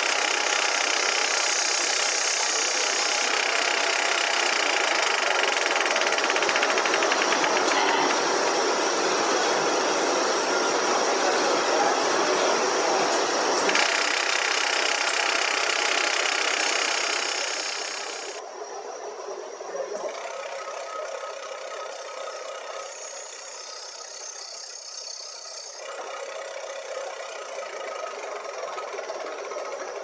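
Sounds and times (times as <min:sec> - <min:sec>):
tool cutting spinning wood: 0:00.0 - 0:08.4, 0:13.6 - 0:18.4
wood lathe running: 0:00.0 - 0:08.8, 0:11.6 - 0:18.4, 0:20.1 - 0:30.0.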